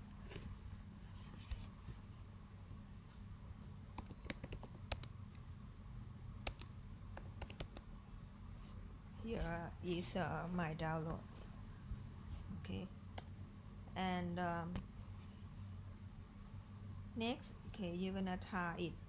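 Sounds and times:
low steady hum: 0.0s - 19.0s
keyboard keystrokes: 4.0s - 5.1s, 6.4s - 7.8s.

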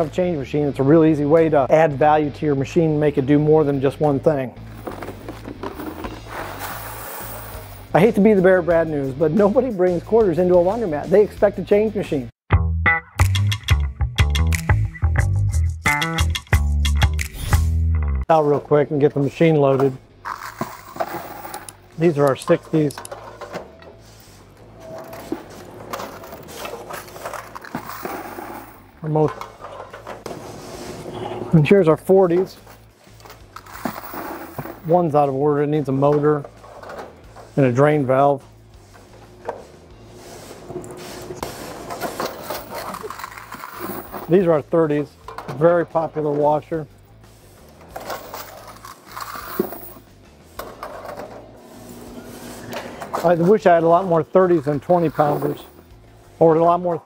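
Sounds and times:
metal coin box sliding out: 4.7s - 7.9s, 19.8s - 24.0s, 24.8s - 31.0s, 33.2s - 35.0s, 40.5s - 44.6s, 47.8s - 53.6s, 54.7s - 55.8s.

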